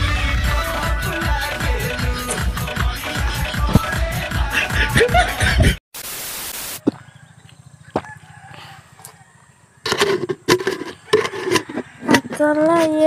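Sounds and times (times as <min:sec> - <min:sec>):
tv static hiss: 0:06.0 - 0:06.9.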